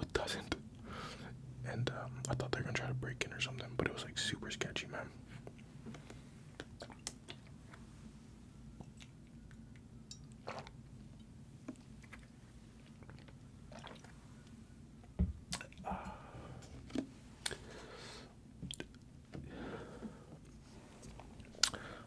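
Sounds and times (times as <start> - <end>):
breathy mouth noises and lip smacks: 2.2 - 2.6, 5.4 - 7.8, 8.8 - 15.8, 18.6 - 19.1, 21.1 - 21.8
wet mouth clicks and swallows: 6.5 - 7.5, 15.5 - 15.8, 18.7 - 19.0, 21.5 - 21.8.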